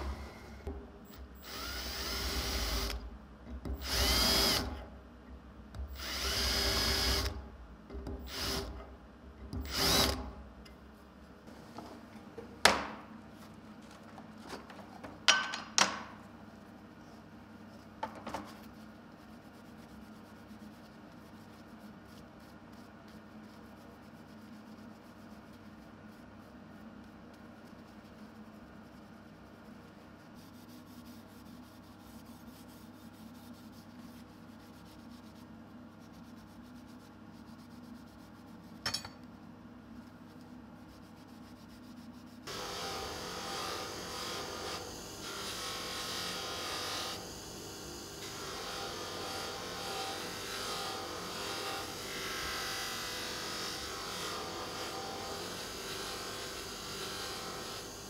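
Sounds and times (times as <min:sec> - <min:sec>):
low shop hum: 0:00.0 - 0:58.0
bench grinder grinding metal: 0:42.5 - 0:58.0.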